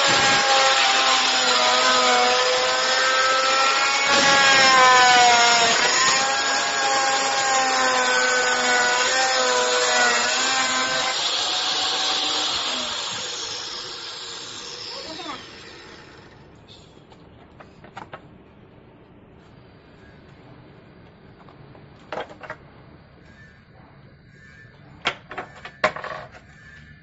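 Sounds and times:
circular saw cutting wood: 0:00.0 - 0:16.4
saw blade spinning down: 0:00.0 - 0:16.4.

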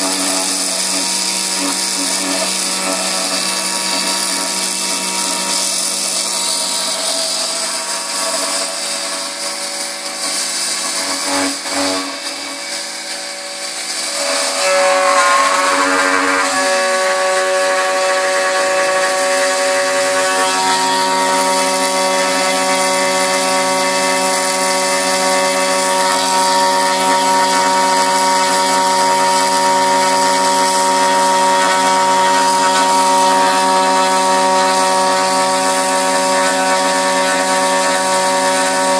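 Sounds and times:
metal cutting hiss: 0:00.0 - 0:20.2
milling spindle whine: 0:00.0 - 0:38.9.

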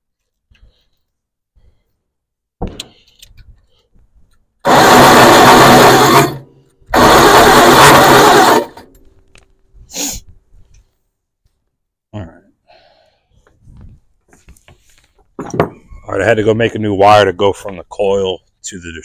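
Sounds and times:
starter motor cranking engine: 0:04.6 - 0:09.1.

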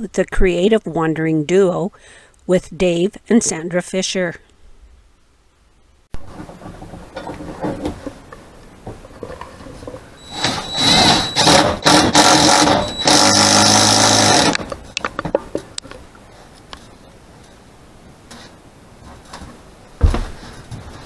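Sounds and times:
cordless drill motor: 0:10.2 - 0:14.7.

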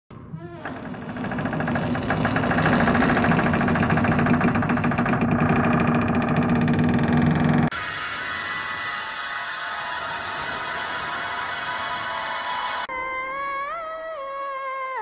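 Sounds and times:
distorted ghostly pulsing: 0:07.7 - 0:12.9.

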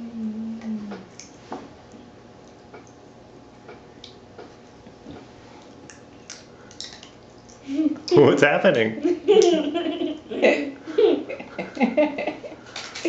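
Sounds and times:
person humming: 0:00.0 - 0:01.1.

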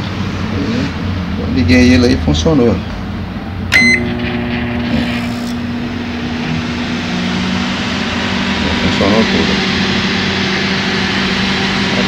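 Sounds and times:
microwave oven humming: 0:03.1 - 0:12.0
microwave keypad beep: 0:03.7 - 0:04.2.

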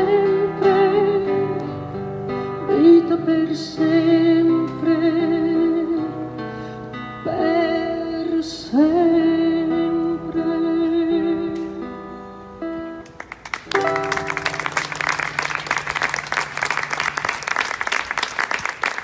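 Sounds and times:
audience applause: 0:13.2 - 0:19.0.

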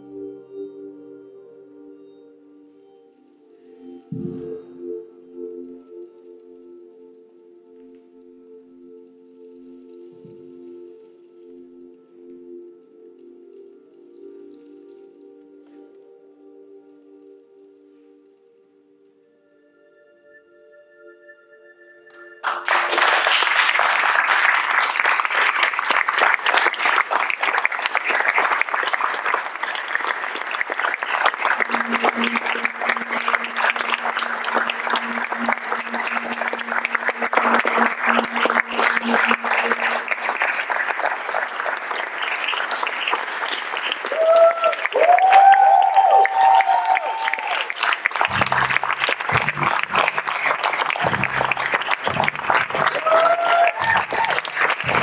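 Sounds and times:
audience applauding: 0:22.4 - 0:55.0
cheering shouts and whoops: 0:44.0 - 0:47.8, 0:52.7 - 0:55.0.

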